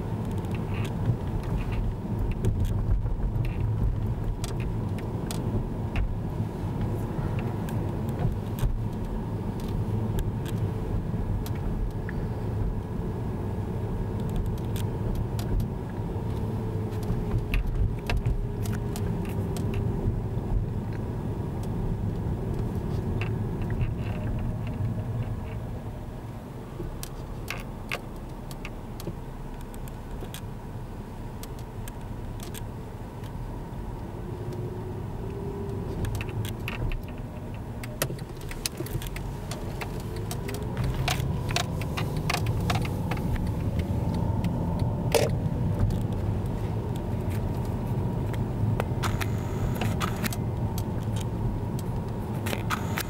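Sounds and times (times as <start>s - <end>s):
car engine and tyre rumble: 0.0s - 53.0s
light clicks and rattles: 14.2s - 25.8s, 26.8s - 30.5s, 34.4s - 53.0s.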